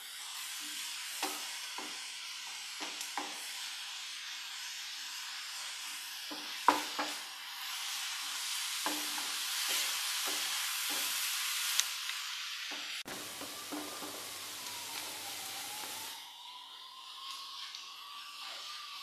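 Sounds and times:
onions sizzling in oil: 0:00.0 - 0:19.0
spatula knocking on pan: 0:06.3 - 0:07.2, 0:08.8 - 0:09.4.

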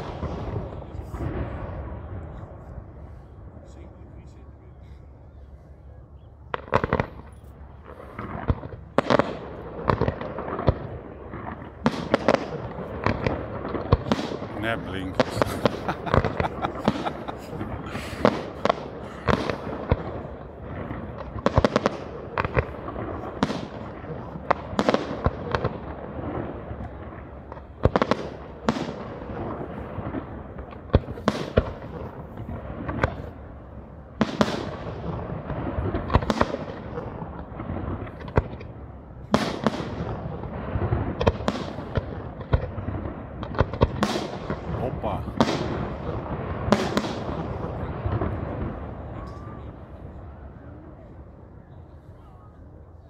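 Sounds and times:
firework shells bursting: 0:06.5 - 0:26.4
din of smaller reports: 0:14.6 - 0:18.3.

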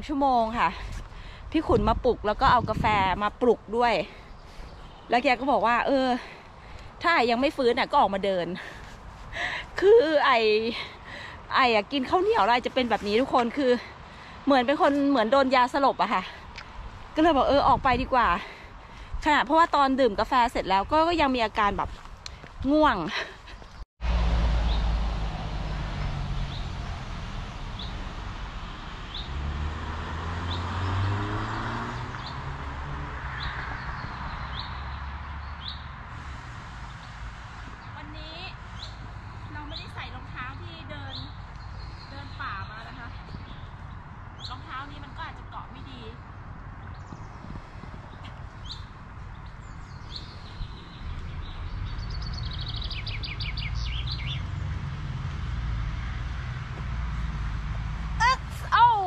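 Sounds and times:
songbird singing: 0:01.7 - 0:08.9, 0:10.1 - 0:23.8, 0:24.5 - 0:36.0, 0:36.8 - 0:59.0
vehicle passing by: 0:24.0 - 0:40.3, 0:45.8 - 0:59.0
bird chirping: 0:46.8 - 0:54.7.

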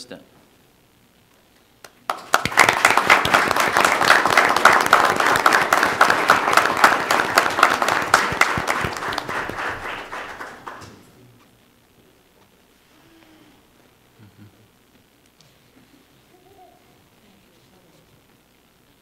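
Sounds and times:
people applauding: 0:01.8 - 0:11.2.

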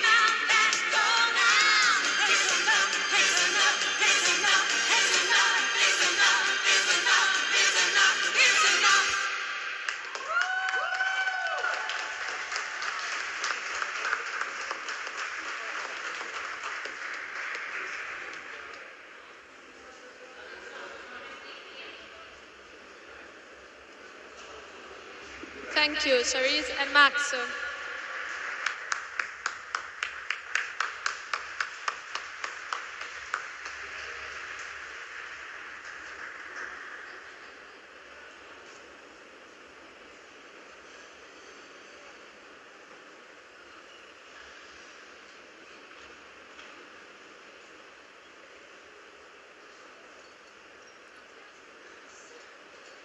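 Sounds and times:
audience applauding: 0:09.7 - 0:19.0, 0:27.7 - 0:37.4
high cheering calls: 0:09.9 - 0:12.9
person clapping close: 0:28.6 - 0:33.8.

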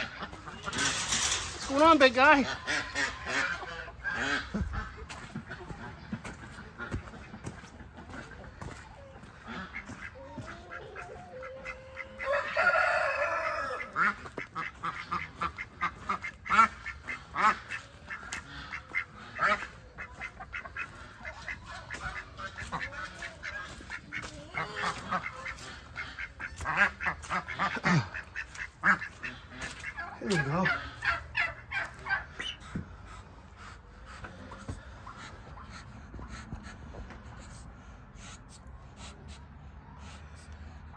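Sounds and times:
chickens calling: 0:00.0 - 0:38.4
ducks quacking: 0:00.0 - 0:39.4.

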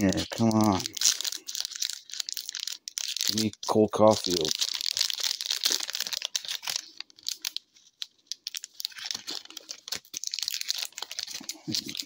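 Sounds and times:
foil wrapper crinkling and tearing: 0:00.0 - 0:12.0.

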